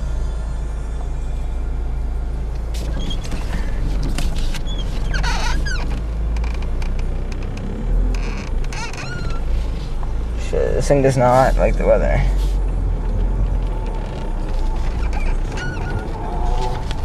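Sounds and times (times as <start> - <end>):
car engine low rumble: 0.0 - 17.0
high gliding squeaks: 2.7 - 6.6, 8.2 - 12.6, 14.2 - 17.0.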